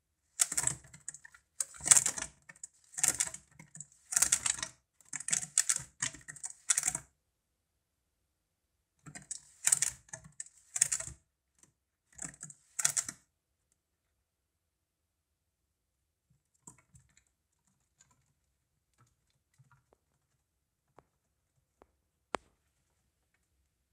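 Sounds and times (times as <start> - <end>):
claws scratching plastic: 0.4 - 4.6.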